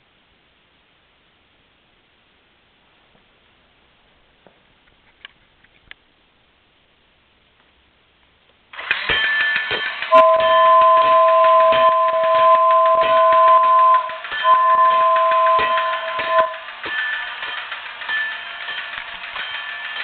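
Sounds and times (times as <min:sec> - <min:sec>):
toy steam train running on track: 0:08.7 - 0:20.0
clicks and rattles from wheels: 0:08.8 - 0:20.0
two-note train whistle: 0:10.1 - 0:16.6.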